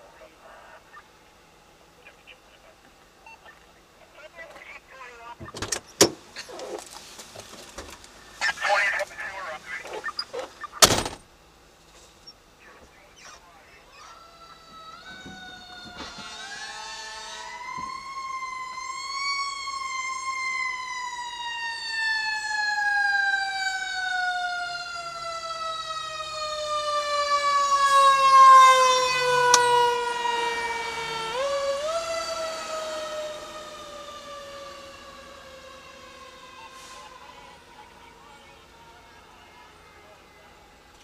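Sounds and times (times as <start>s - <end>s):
fire engine siren wailing: 13.4s - 41.0s.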